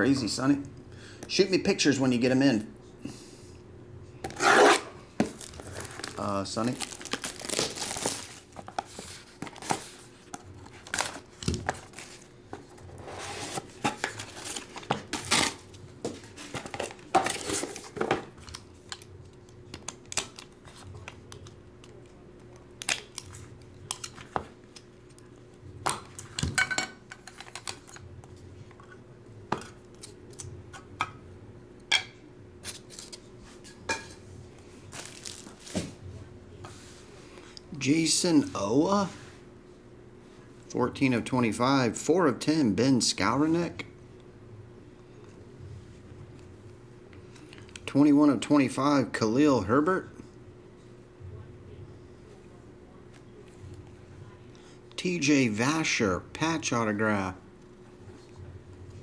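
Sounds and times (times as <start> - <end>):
faint steady hum: 0.0 - 59.0
box cutter slitting packaging: 4.4 - 5.5
plastic wrap tearing and crinkling: 4.6 - 9.9, 10.5 - 12.3, 13.2 - 15.7, 22.8 - 24.2, 34.9 - 35.9.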